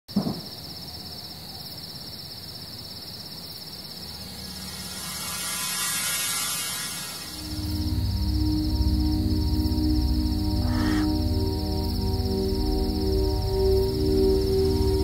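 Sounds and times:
crickets chirping: 0.1s - 15.0s
thin high steady tones: 3.8s - 15.0s
hiss: 4.0s - 8.6s.

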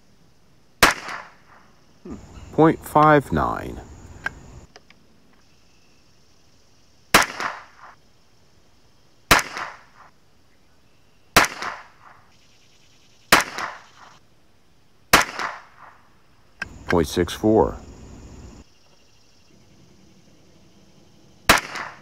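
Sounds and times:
rifle shots with echo: 0.8s - 1.7s, 7.1s - 8.0s, 9.3s - 10.1s, 11.4s - 12.2s, 13.3s - 14.0s, 15.1s - 16.0s, 21.5s - 22.0s.

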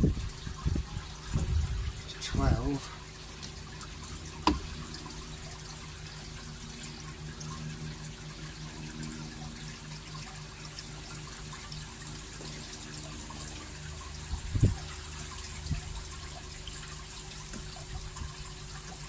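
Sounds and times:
low steady hum: 0.0s - 19.0s
water trickling: 0.0s - 19.0s
sharp knock: 4.4s - 4.7s.

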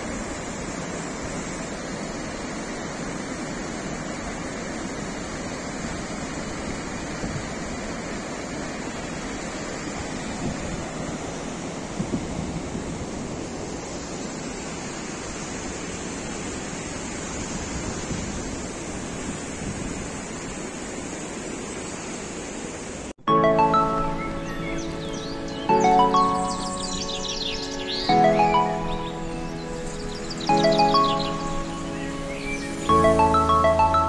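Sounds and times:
river rushing over rocks: 0.0s - 34.0s
music: 23.3s - 34.0s.

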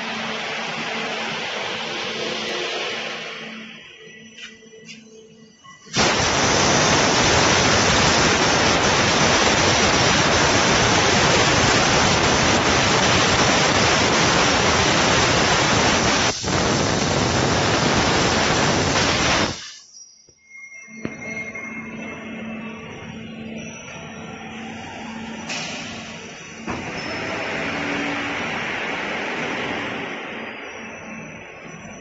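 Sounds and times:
laser cutter gas hiss: 5.9s - 19.9s.

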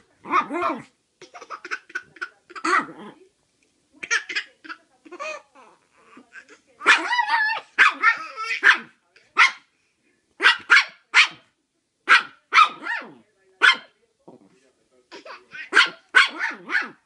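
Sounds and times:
small dog barking in sharp yaps: 15.7s - 17.0s.

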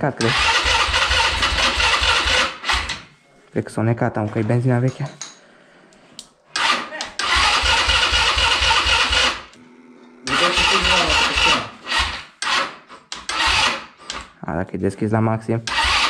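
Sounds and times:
electric starter cranking engine: 0.2s - 3.1s, 6.5s - 9.6s, 10.3s - 14.3s, 15.7s - 16.0s.

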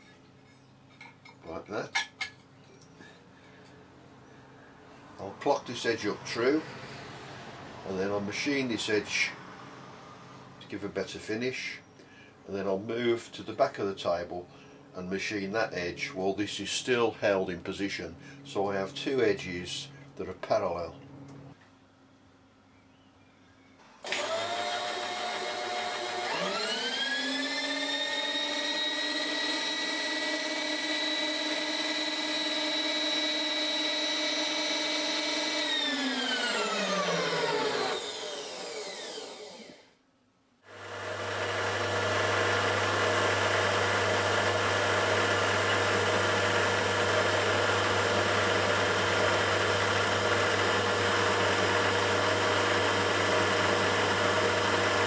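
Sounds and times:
end mill cutting metal: 24.0s - 39.8s, 40.7s - 55.0s
motor winding up and down: 24.0s - 40.0s, 40.7s - 55.0s
milling machine humming: 24.1s - 39.8s, 40.7s - 55.0s.

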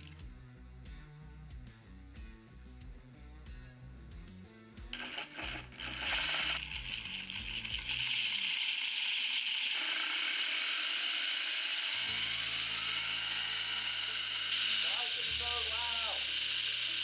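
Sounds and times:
gearbox whirring and rattling: 5.0s - 17.0s.

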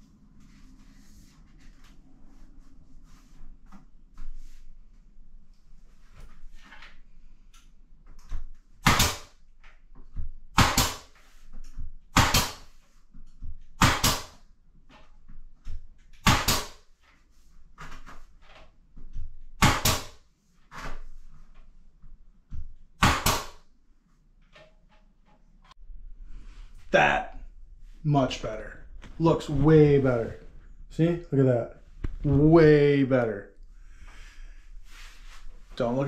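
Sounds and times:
nail gun firing into wood: 8.8s - 9.4s, 10.5s - 11.1s, 12.1s - 12.7s, 13.8s - 14.4s, 16.2s - 16.8s, 19.6s - 20.2s, 23.0s - 23.6s.

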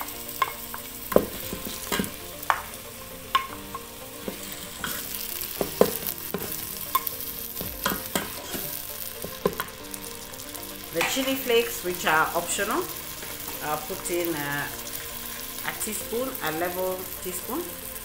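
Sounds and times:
wooden spoon scraping and knocking: 0.0s - 9.8s
food sizzling: 0.0s - 18.0s.

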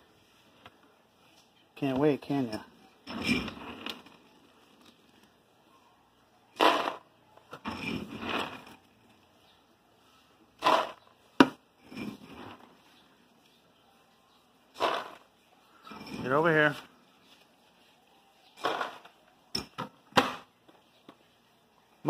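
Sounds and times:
dry dog food pouring: 14.8s - 15.2s.

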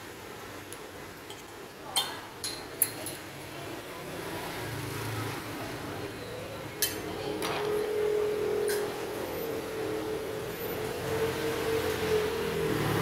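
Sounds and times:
steady background hum: 5.6s - 13.0s
steady humming tone: 5.9s - 13.0s.

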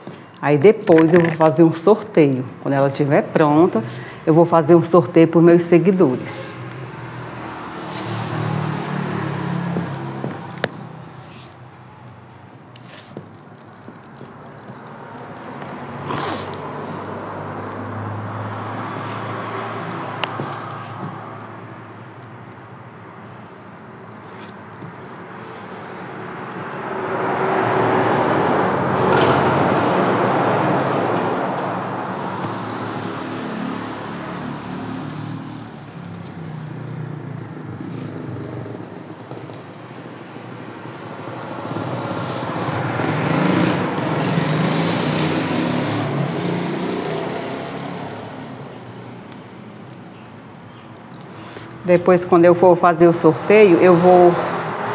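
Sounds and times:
vehicle engine passing by: 6.0s - 11.6s, 26.8s - 39.1s, 41.5s - 49.3s.

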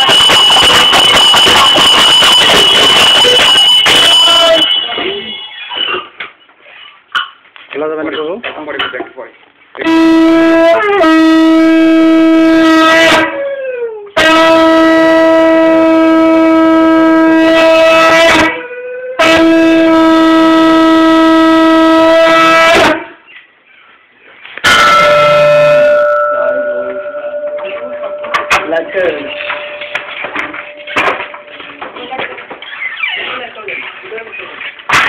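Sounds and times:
conch shell blasts: 0.0s - 6.1s, 9.8s - 13.4s, 14.2s - 18.6s, 19.2s - 23.2s, 24.6s - 31.6s.

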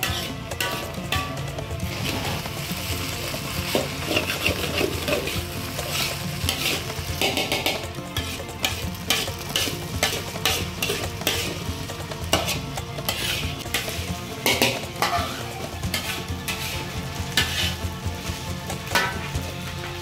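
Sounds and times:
food sizzling: 0.0s - 20.0s
metal spatula scraping a pan: 0.0s - 20.0s.

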